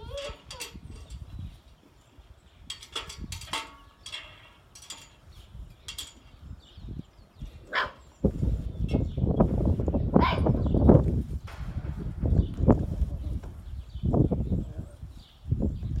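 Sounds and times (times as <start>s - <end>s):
puppies yipping and barking: 0.0s - 0.8s
loud low rumble: 11.5s - 13.7s.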